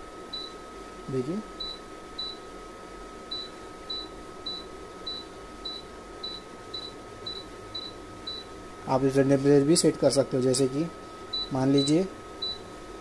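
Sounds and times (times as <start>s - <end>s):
short high key beeps: 11.4s - 12.6s.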